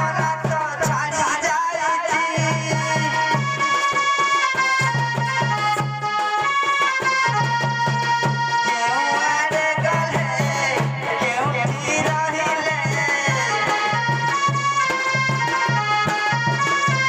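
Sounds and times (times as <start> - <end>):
hand-drum beat: 0.0 - 1.4, 2.0 - 17.0
free-reed instrument melody: 3.1 - 9.4, 12.3 - 17.0.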